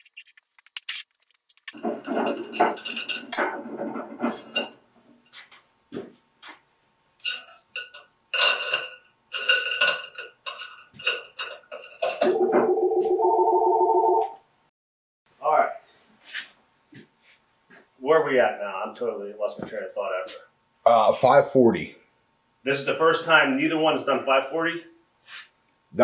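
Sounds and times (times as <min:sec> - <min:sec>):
metal weight plates clanking: 0:01.8 - 0:04.9, 0:07.2 - 0:12.9
sharp metallic clinks ringing: 0:07.2 - 0:12.4.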